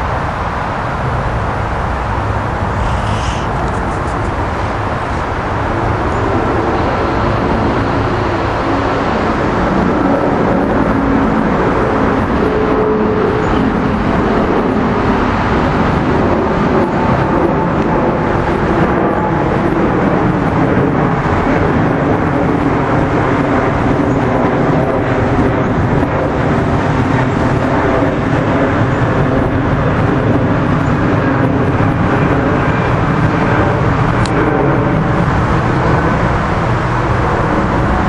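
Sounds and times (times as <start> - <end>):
jet airliner engines rumbling: 0.0 - 38.0.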